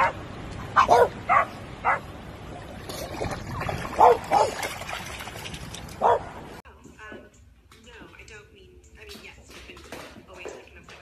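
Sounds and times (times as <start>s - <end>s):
dog barking: 0.0s - 0.2s, 0.8s - 2.1s, 4.0s - 4.6s, 6.0s - 6.3s.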